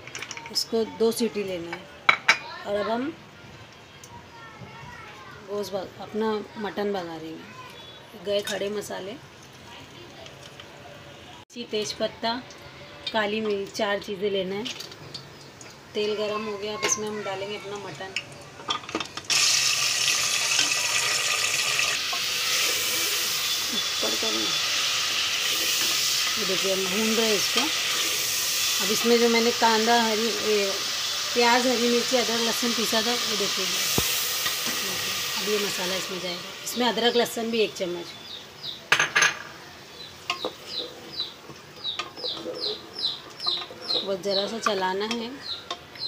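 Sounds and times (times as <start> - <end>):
meat sizzling in hot oil: 19.2 - 38.5.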